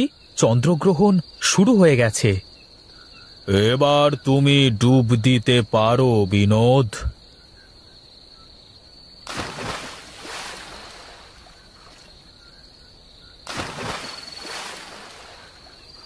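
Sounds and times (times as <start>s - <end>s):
crickets chirring: 0.0s - 16.0s
water splashes: 9.3s - 12.4s, 13.4s - 16.0s.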